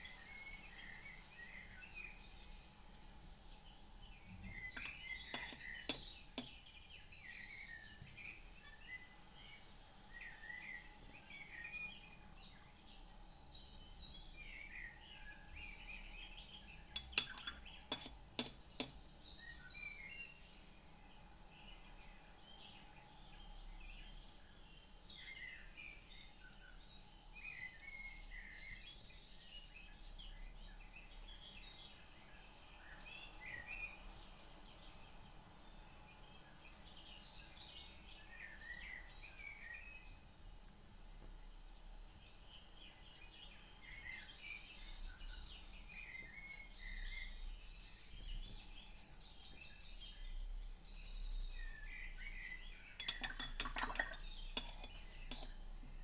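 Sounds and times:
sharp clinks: 0:17.0 - 0:18.9, 0:53.0 - 0:55.6.

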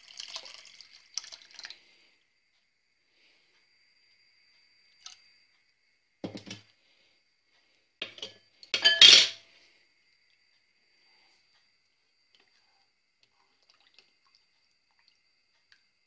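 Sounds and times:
utensil and dishes clinking: 0:08.0 - 0:09.4.

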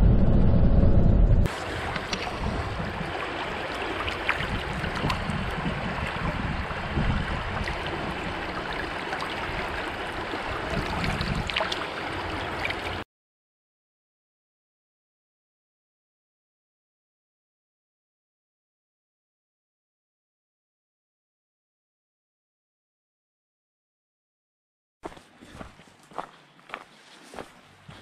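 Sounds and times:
shallow river flowing over cobbles: 0:01.5 - 0:13.0.

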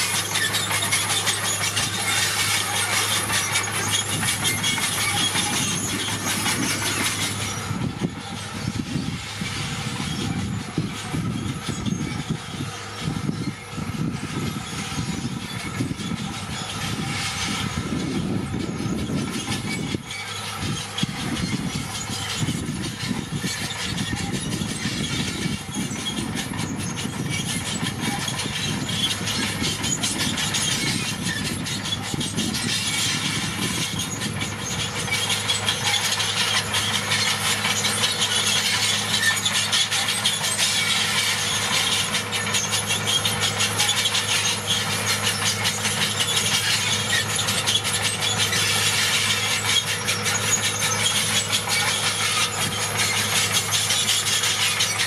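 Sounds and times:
diesel engine under load: 0:00.0 - 0:55.0
steel tracks squealing and clattering: 0:00.0 - 0:55.0.

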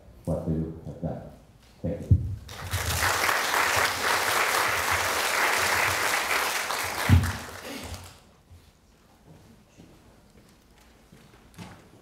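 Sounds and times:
audience applauding: 0:02.5 - 0:08.2.

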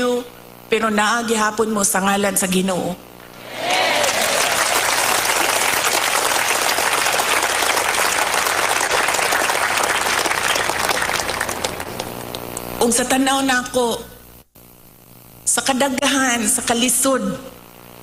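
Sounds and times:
large crowd applauding: 0:03.4 - 0:12.6.

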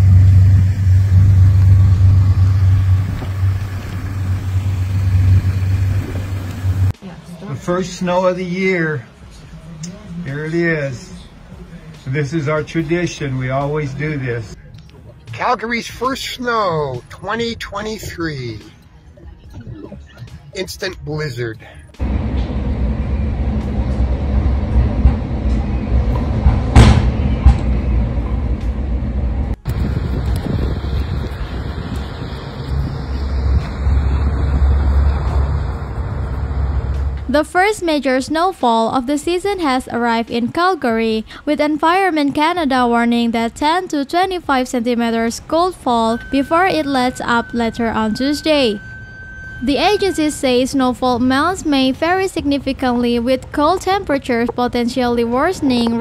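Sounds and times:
gusty wind on microphone: 0:00.0 - 0:06.9, 0:22.0 - 0:37.0
vehicle engine idling: 0:00.0 - 0:07.0, 0:21.9 - 0:37.3.

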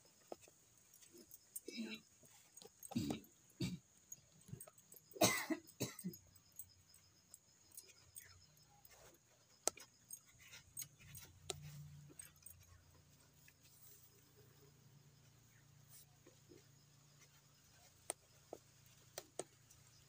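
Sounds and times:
cough-like burst: 0:05.2 - 0:06.2.

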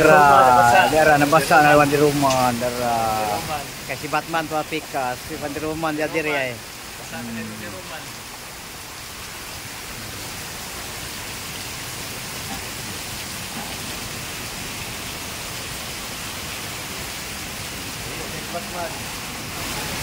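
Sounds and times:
heavy rain pouring: 0:00.0 - 0:20.0.

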